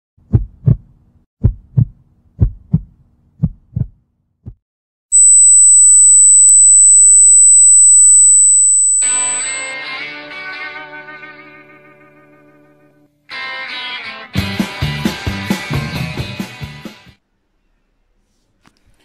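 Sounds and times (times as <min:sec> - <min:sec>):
heartbeat thumps: 0:00.2 - 0:04.6
high-pitched test-pattern beep: 0:05.1 - 0:09.6.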